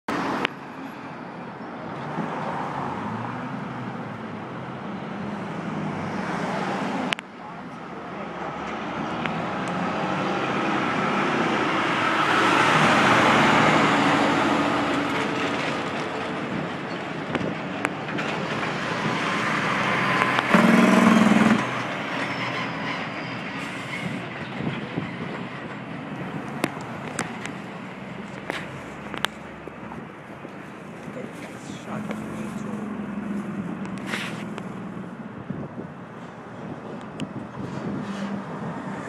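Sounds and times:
street traffic noise: 0:00.1 - 0:39.0
heavy vehicle rumbling past: 0:08.4 - 0:30.1
loud low horn blare: 0:20.0 - 0:21.8.

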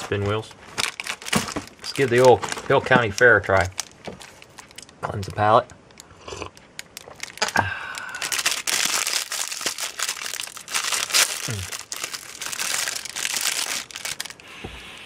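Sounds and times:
plastic wrapper crinkling: 0:00.0 - 0:14.4.

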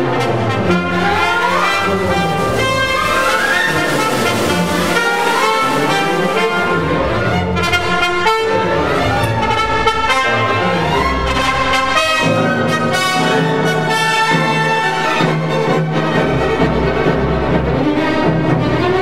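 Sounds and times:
orchestral music with brass: 0:00.0 - 0:19.0.

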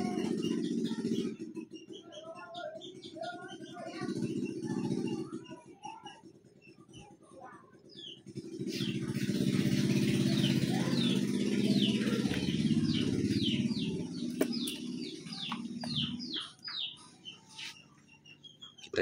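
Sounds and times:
bird chirping: 0:00.0 - 0:19.0
vehicle engine passing by: 0:08.2 - 0:16.4.

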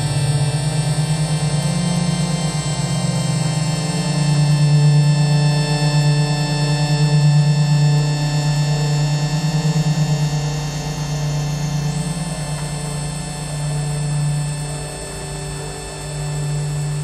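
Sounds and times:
low hum with fast wobble: 0:00.0 - 0:17.0.

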